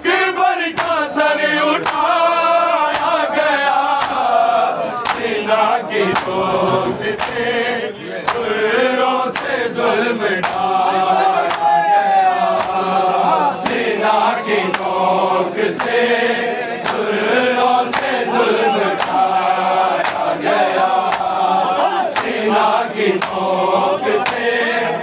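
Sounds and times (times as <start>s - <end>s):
men chanting in unison: 0.0s - 25.0s
hands slapping chests: 0.7s - 1.1s, 1.8s - 2.1s, 2.9s - 3.2s, 3.9s - 4.3s, 5.0s - 7.5s, 8.2s - 8.5s, 9.3s - 9.6s, 10.4s - 10.7s, 11.4s - 11.8s, 12.5s - 12.9s, 13.6s - 13.9s, 14.6s - 15.0s, 15.7s - 16.0s, 16.8s - 17.1s, 17.9s - 18.3s, 18.9s - 19.3s, 20.0s - 20.4s, 21.0s - 21.4s, 22.1s - 22.4s, 23.2s - 23.4s, 24.2s - 24.5s.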